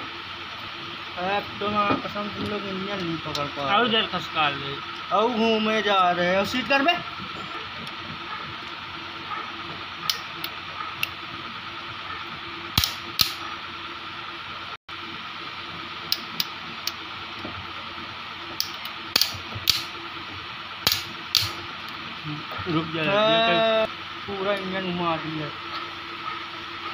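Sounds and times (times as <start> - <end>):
torque wrench clicking: 12.8 - 13.4, 18.6 - 19.9, 20.8 - 21.6.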